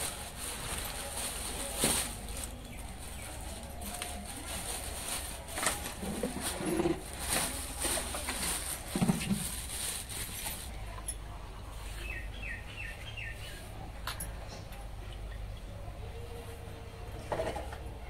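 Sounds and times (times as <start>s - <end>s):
plastic bag rustling: 0.0s - 10.8s.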